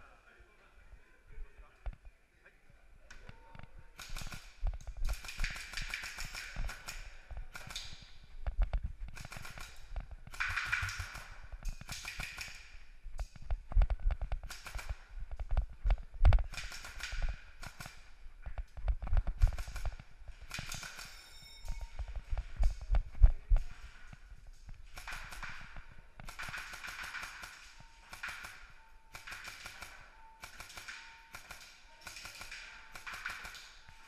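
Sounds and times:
airsoft rifle shots: 4.0 - 8.2, 9.1 - 12.8, 14.4 - 15.1, 16.3 - 18.1, 19.2 - 21.2, 24.9 - 34.0.

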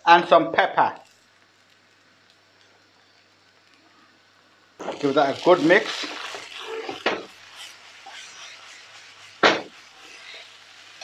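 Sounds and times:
noodles stirred in frying pan: 1.6 - 11.0
utensil knocking on pan: 9.4 - 9.7.

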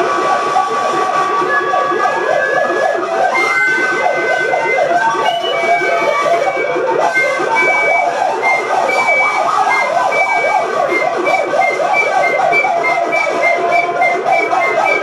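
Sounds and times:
siren-like warbling tone: 0.0 - 15.0
short high steady notes: 3.3 - 15.0.

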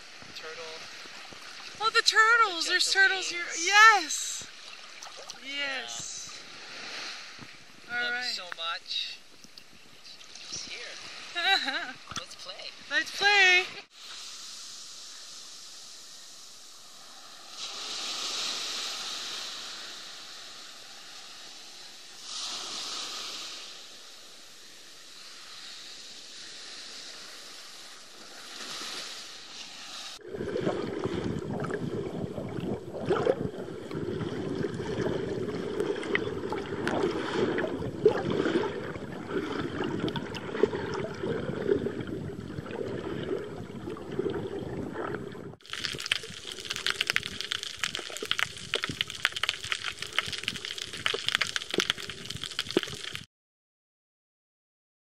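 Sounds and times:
water sloshing and gurgling: 0.0 - 14.2, 26.6 - 53.3
ocean surf washing in: 1.8 - 4.5, 10.6 - 32.1
small clicks and pops: 45.6 - 53.3.

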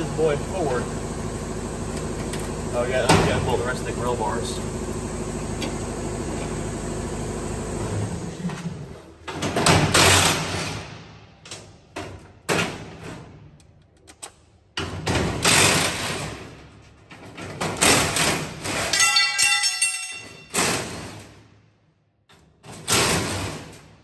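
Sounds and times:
air compressor running: 0.0 - 11.0.

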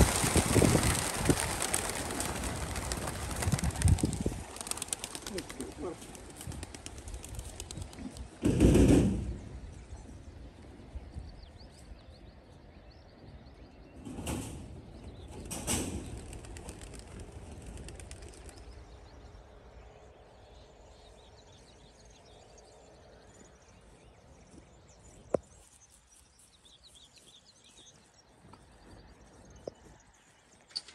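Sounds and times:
rush of many wings: 0.0 - 8.4, 15.5 - 18.8.

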